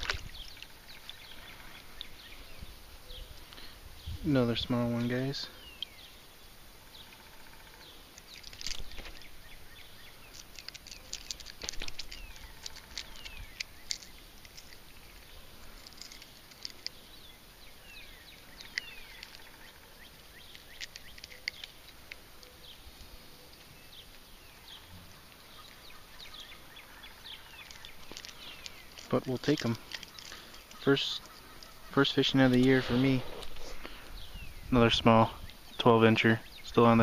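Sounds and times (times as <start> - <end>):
water lapping at rocks: 0.0 - 2.2.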